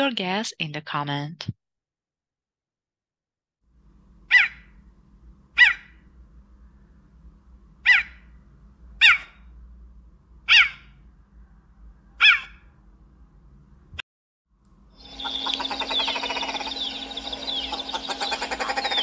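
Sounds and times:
faint low hum: 14.6 - 19.0.

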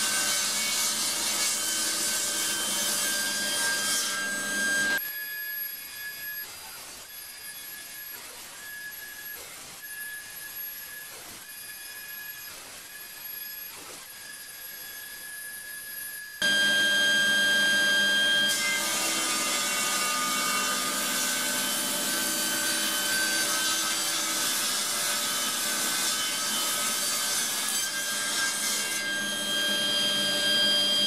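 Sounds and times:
saw blade cutting wood: 0.0 - 5.0, 16.4 - 31.0
table saw blade whining: 0.0 - 6.4, 9.9 - 31.0.

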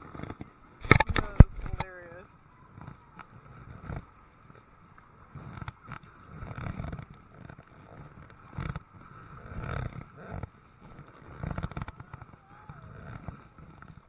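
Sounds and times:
paddle strokes in water: 2.4 - 14.0.

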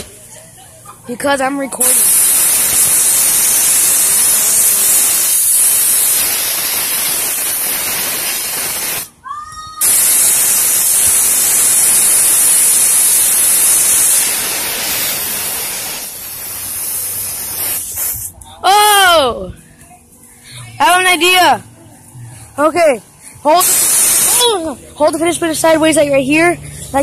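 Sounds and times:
compressed air hissing: 1.8 - 9.2, 9.8 - 18.4, 23.3 - 24.8.

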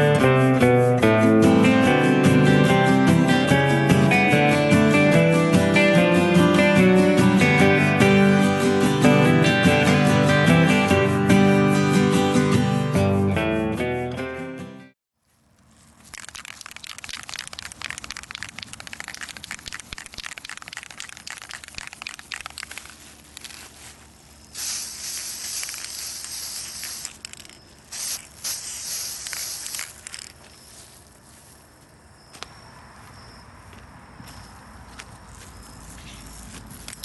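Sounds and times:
spray can ball rattling: 16.0 - 31.0
spray paint hissing: 16.0 - 31.1.

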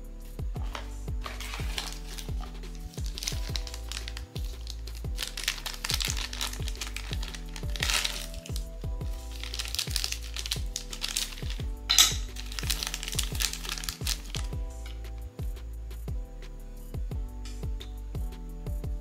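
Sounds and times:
background music with bass: 0.0 - 19.0
plastic wrappers crinkling: 0.6 - 15.0
sharp wrapper crackle: 1.2 - 15.0.

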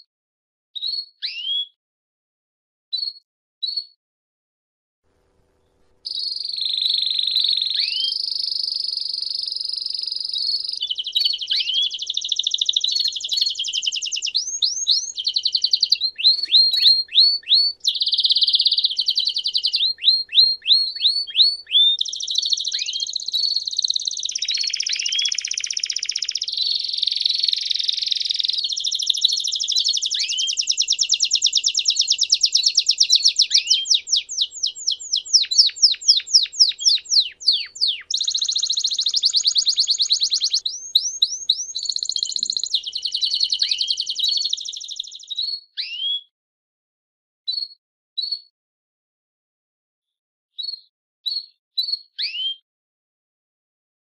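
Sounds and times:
canary singing trills: 6.0 - 46.3.

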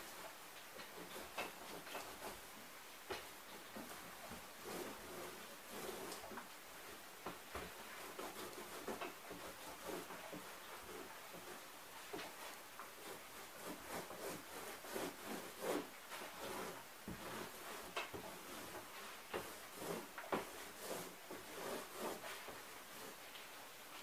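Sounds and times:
paint roller rubbing on cardboard: 0.8 - 2.5, 3.5 - 23.6.

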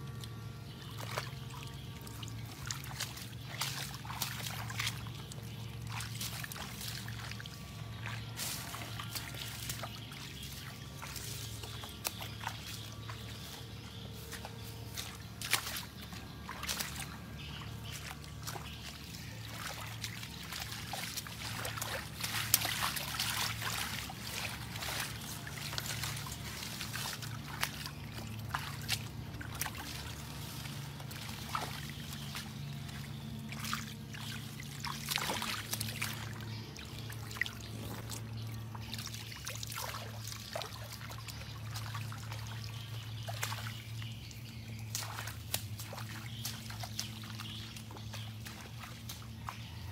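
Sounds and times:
low hum: 0.0 - 49.9
shallow water splashing: 0.0 - 49.9.

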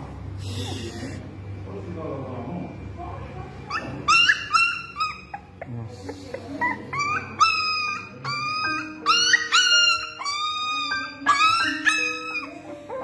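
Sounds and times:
puppy whimpering: 0.4 - 1.2, 3.7 - 13.0.

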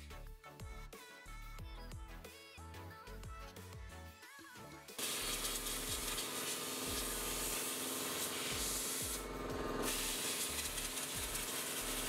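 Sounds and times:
pressure washer spraying water: 5.0 - 12.0.

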